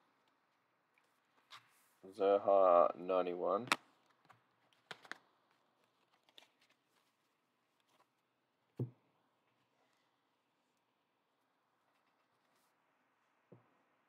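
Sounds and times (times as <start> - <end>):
soft thump on table mat: 8.8 - 9.0.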